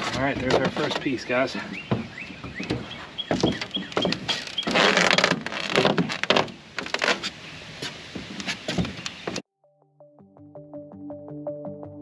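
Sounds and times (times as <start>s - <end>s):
footsteps on aluminum boat floor: 0.0s - 9.4s.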